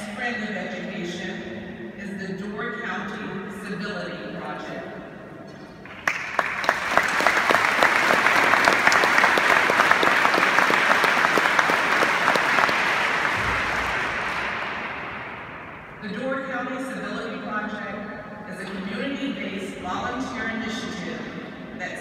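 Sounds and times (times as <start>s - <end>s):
audience applauding: 5.9s - 15.4s.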